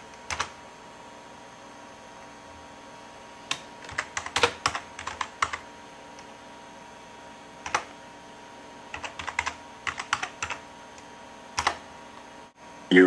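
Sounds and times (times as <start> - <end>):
computer keyboard typing: 0.0 - 0.6, 3.5 - 5.7, 7.6 - 8.0, 8.9 - 10.7, 11.6 - 11.9.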